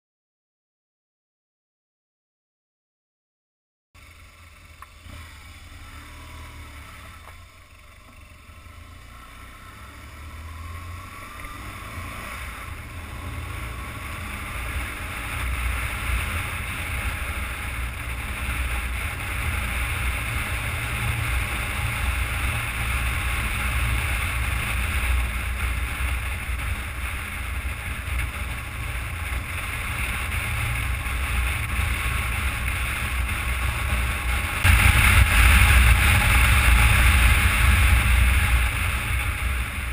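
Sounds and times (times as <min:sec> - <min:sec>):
motorcycle engine rumble: 0:04.0 - 0:39.9
wind rushing over microphone: 0:28.7 - 0:39.9.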